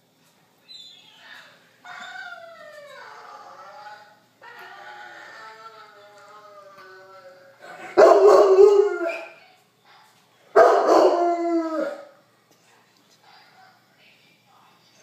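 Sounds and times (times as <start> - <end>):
faint recorded howl from phone: 1.2 - 12.4
dog howling: 1.8 - 9.4, 10.6 - 12.2.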